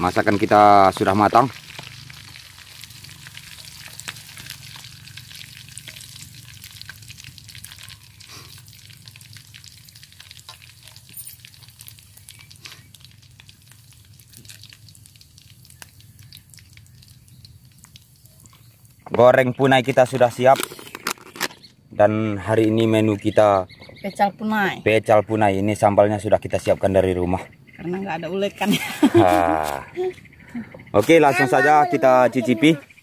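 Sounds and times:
deep-frying sizzle with pops: 0.0 - 21.8.

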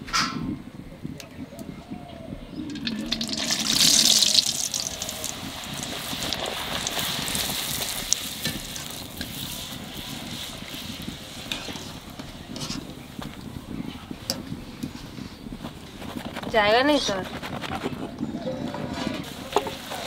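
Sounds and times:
dough sizzling in hot oil: 2.7 - 12.8.

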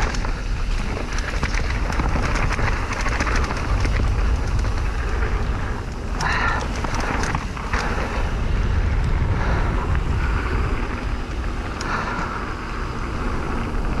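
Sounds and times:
wind buffeting microphone: 0.0 - 14.0
faint clicks: 11.2 - 12.4.

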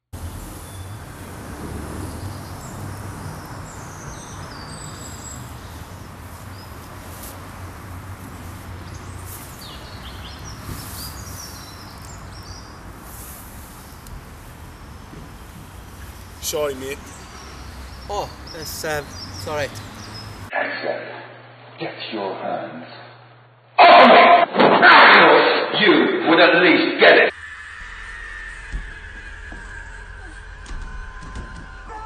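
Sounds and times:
small birds chirping: 0.2 - 20.5.

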